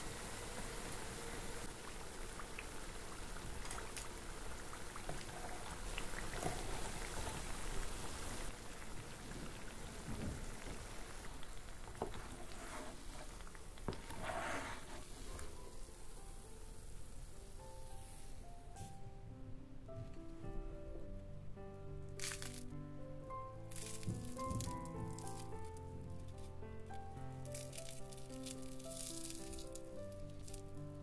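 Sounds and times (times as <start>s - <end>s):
hot oil sizzling: 0.0s - 18.4s, 27.4s - 31.0s.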